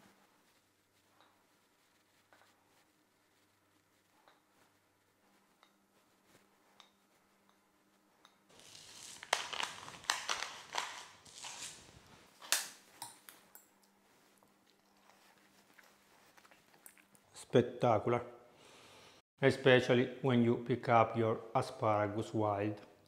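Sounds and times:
rustling: 0:08.5 - 0:13.0.

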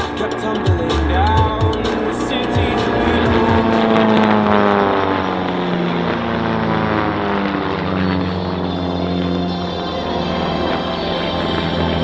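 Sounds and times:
propeller aircraft engine droning: 0:00.0 - 0:12.0.

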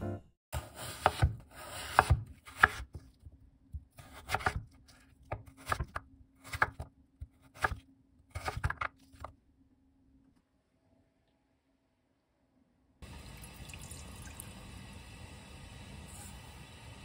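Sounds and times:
knife chopping on wooden board: 0:00.6 - 0:03.0, 0:03.8 - 0:08.9
knife slicing radish: 0:00.6 - 0:03.1, 0:03.8 - 0:08.9.

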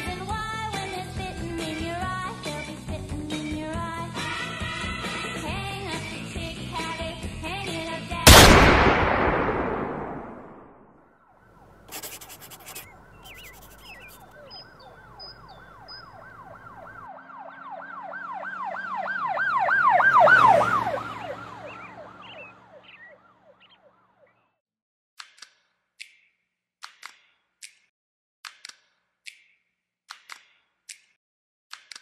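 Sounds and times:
siren yelping: 0:12.6 - 0:24.0.

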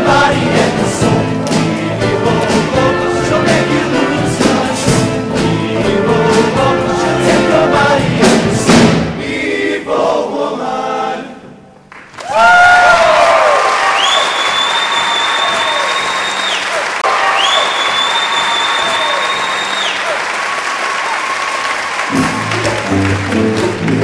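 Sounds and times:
choir singing in harmony: 0:00.0 - 0:11.6
audience applause: 0:11.9 - 0:24.0
whooping cheers: 0:12.2 - 0:23.3.

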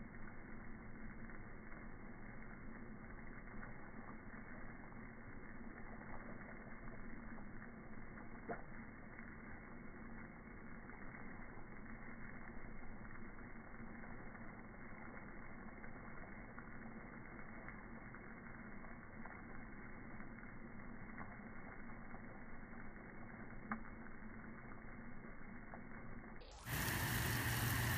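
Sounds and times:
sprinkler water jet hissing: 0:00.0 - 0:25.8, 0:26.4 - 0:27.9
low hum: 0:00.0 - 0:27.9
faint clicks: 0:08.2 - 0:08.8.

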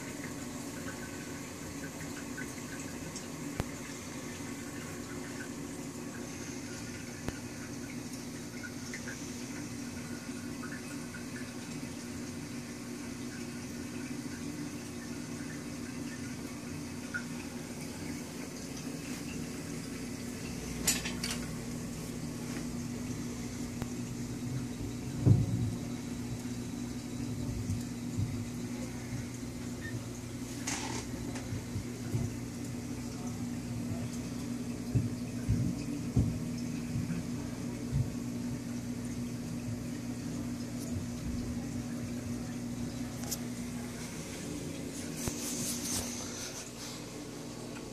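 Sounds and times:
aquarium pumps humming: 0:00.0 - 0:47.9
water circulating hiss: 0:00.0 - 0:47.9
soft low thump: 0:25.2 - 0:25.8.

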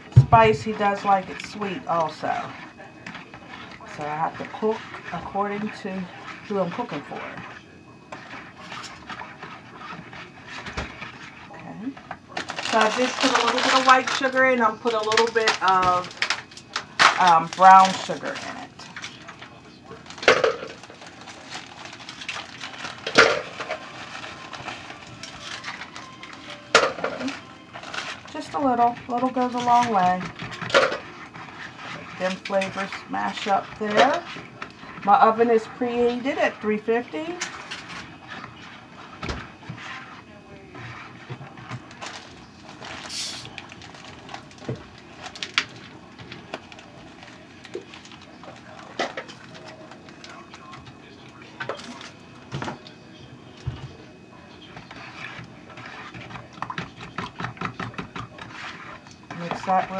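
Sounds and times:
sugar bag rustling and crinkling: 0:00.0 - 0:59.9
containers and utensils clicking: 0:12.4 - 0:19.3, 0:20.0 - 0:31.1.

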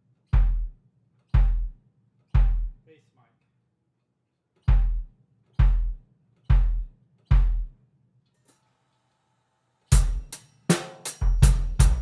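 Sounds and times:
drum kit playing: 0:00.0 - 0:00.8, 0:01.4 - 0:01.8, 0:02.4 - 0:02.8, 0:04.6 - 0:07.8, 0:09.9 - 0:12.0
bass drum thuds: 0:00.4 - 0:00.8, 0:01.4 - 0:01.8, 0:02.4 - 0:02.8, 0:04.7 - 0:07.8, 0:11.2 - 0:12.0.

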